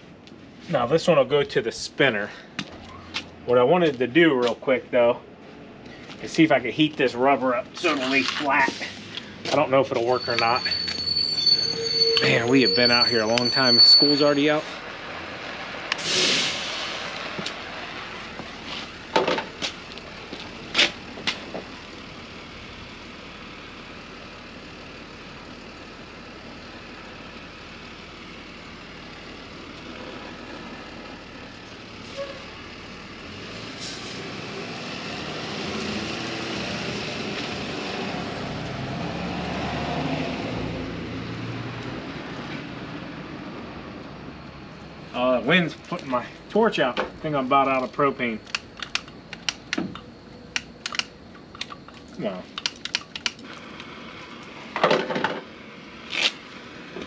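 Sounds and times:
engine: 0.0 - 57.0
propane torch hissing: 15.9 - 17.5.

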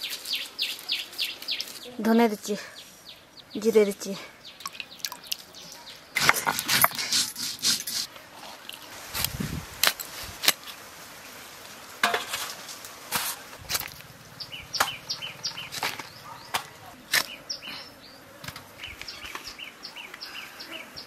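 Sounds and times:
blade scraping fish scales: 6.2 - 9.3
insect buzzing: 17.1 - 21.0.

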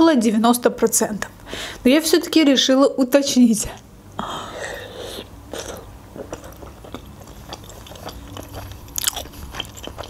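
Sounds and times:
wet chewing mouth clicks: 5.5 - 10.0.

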